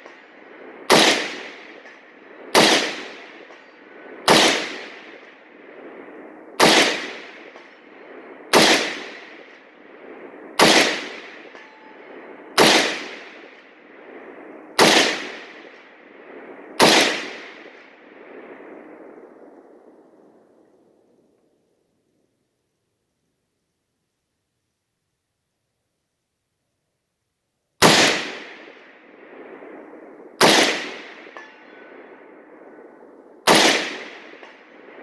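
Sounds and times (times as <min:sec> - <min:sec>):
gunshot echo: 0:00.0 - 0:19.1, 0:27.8 - 0:35.0
rifle shots: 0:00.0 - 0:19.1, 0:27.8 - 0:35.0.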